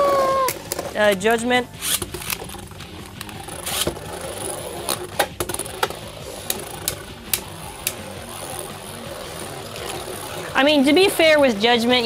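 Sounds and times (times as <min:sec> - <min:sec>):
spinning tops whirring: 0:01.7 - 0:12.0
tops clacking together: 0:04.8 - 0:08.0.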